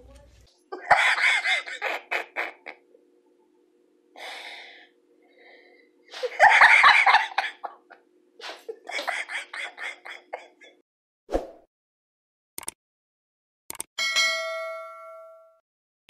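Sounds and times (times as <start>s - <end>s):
faint steady hum: 0.0s - 10.8s
person laughing: 0.7s - 2.8s, 6.1s - 10.8s
breathy gasp: 4.2s - 5.9s.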